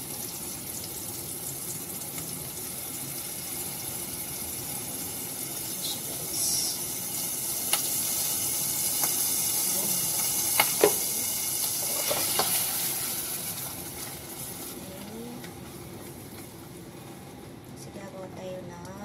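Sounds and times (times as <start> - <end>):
liquid hissing in saucepan: 0.0 - 16.4.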